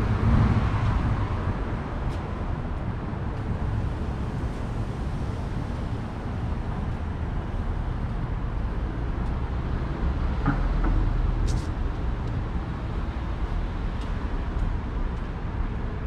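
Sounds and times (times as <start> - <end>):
street traffic rumbling: 0.0 - 16.0.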